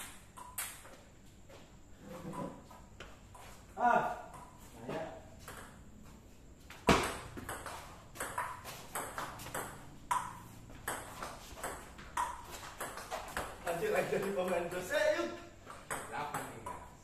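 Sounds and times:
ping pong ball clicking: 0:00.0 - 0:00.9, 0:07.1 - 0:13.0.

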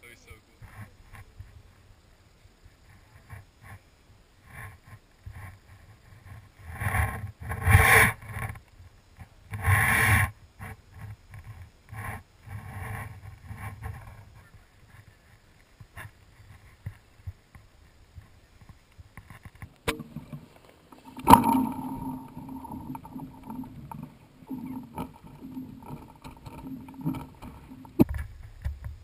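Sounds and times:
scraping bursts: 0:19.9 - 0:28.1.

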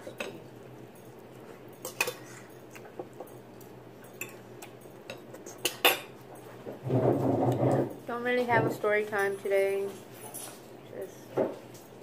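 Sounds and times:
clinks against a dinner plate: 0:01.8 - 0:03.4, 0:04.0 - 0:06.2.

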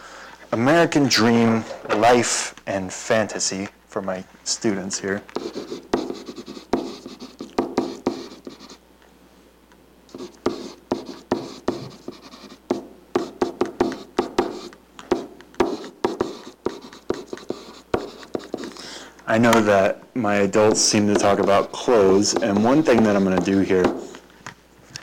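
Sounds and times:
stylus scratching on touch surface: 0:05.2 - 0:08.8, 0:10.1 - 0:18.8, 0:20.6 - 0:24.2
stylus tapping: 0:05.3 - 0:08.8, 0:10.1 - 0:18.8, 0:20.6 - 0:24.2.

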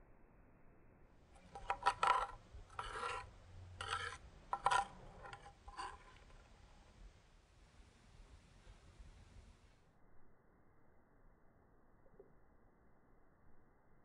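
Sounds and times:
metal spoon scraping mortar: 0:01.4 - 0:06.5.

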